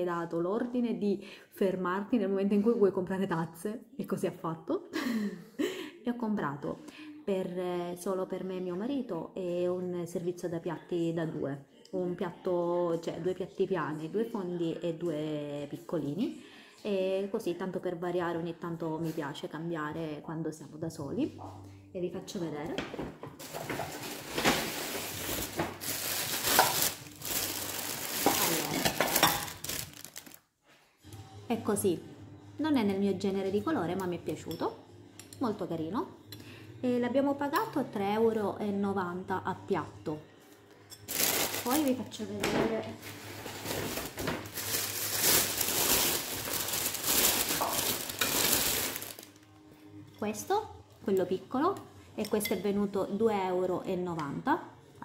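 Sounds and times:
packaging rustling and crinkling: 23.4s - 30.4s, 41.1s - 42.0s, 43.0s - 49.4s.

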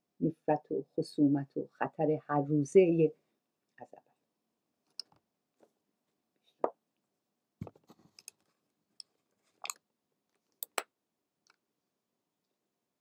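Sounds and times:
small clicks and taps: 10.6s - 11.6s.

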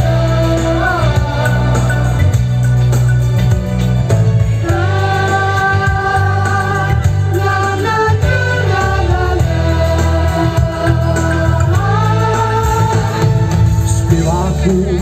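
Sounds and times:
pop backing track over speakers: 0.0s - 15.0s.

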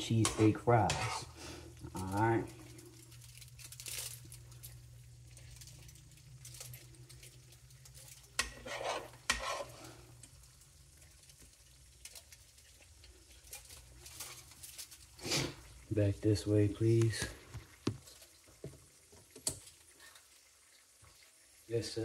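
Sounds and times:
spoon scraping a pan: 0.0s - 1.6s, 8.2s - 10.0s
faint sizzle: 0.0s - 22.0s.

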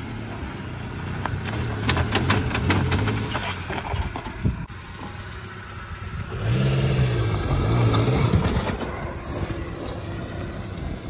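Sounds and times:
car engine revving: 6.3s - 9.6s.

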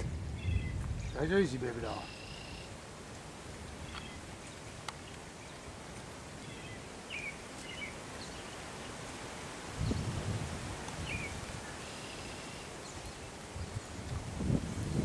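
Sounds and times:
wind rumble on microphone: 0.0s - 2.0s, 9.5s - 11.7s, 13.0s - 15.0s
wind and rustling leaves: 0.0s - 15.0s.

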